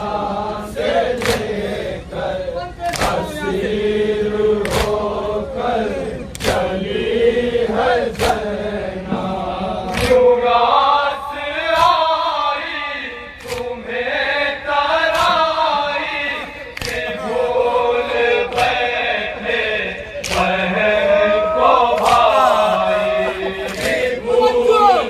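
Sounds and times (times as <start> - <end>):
men chanting a lament: 0.0 - 25.0
sharp rhythmic beat: 21.8 - 25.0.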